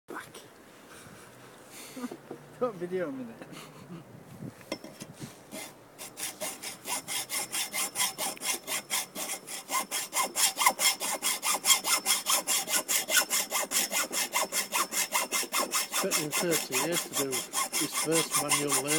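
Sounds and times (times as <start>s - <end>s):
hacksaw cutting metal pole: 5.5s - 18.9s.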